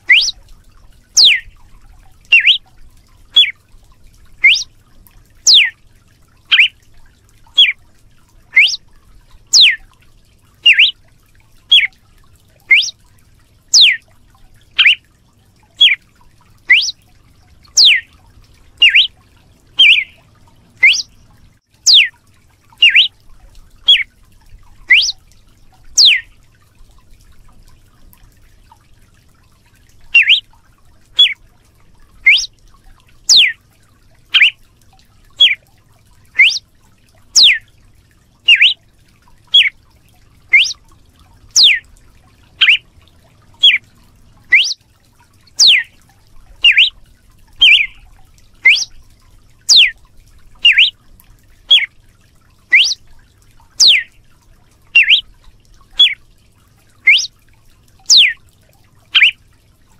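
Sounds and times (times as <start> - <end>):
bird whistled calls: 0.0 - 0.4, 1.2 - 1.5, 2.3 - 2.6, 3.4 - 3.6, 4.4 - 4.7, 5.5 - 5.7, 6.5 - 6.8, 7.6 - 7.8, 8.5 - 8.8, 9.5 - 9.8, 10.6 - 11.0, 11.7 - 11.9, 12.7 - 13.0, 13.7 - 14.0, 14.8 - 15.0, 15.8 - 16.0, 16.7 - 17.0, 17.7 - 18.1, 18.8 - 19.2, 19.8 - 20.2, 20.8 - 21.1, 21.9 - 22.1, 22.8 - 23.1, 23.9 - 24.1, 24.9 - 25.2, 26.0 - 26.3, 30.1 - 30.4, 31.2 - 31.4, 32.2 - 32.5, 33.3 - 33.6, 34.3 - 34.6, 35.4 - 35.6, 36.4 - 36.6, 37.4 - 37.6, 38.5 - 38.8, 39.5 - 39.7, 40.5 - 40.8, 41.6 - 41.8, 42.6 - 42.8, 43.6 - 43.8, 44.5 - 44.8, 45.6 - 45.9, 46.6 - 46.9, 47.6 - 48.0, 48.6 - 49.0, 49.7 - 50.0, 50.6 - 50.9, 51.7 - 51.9, 52.7 - 53.0, 53.8 - 54.1, 55.0 - 55.3, 56.0 - 56.2, 57.0 - 57.3, 58.1 - 58.4, 59.2 - 59.4.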